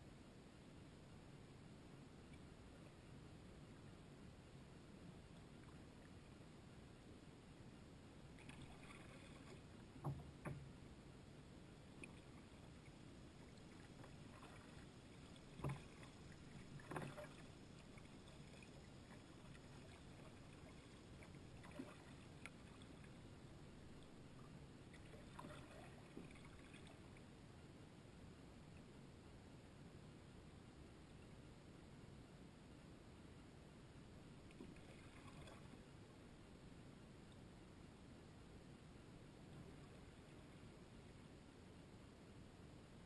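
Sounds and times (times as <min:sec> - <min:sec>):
paddle knocks and splashes: 0:15.5 - 0:17.4.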